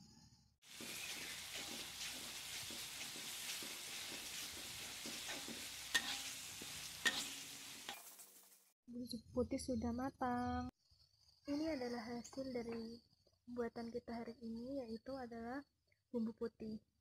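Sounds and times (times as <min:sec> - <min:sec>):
paste sizzling in a wok: 0:00.6 - 0:08.6
spatula clacking on wok: 0:00.7 - 0:08.2.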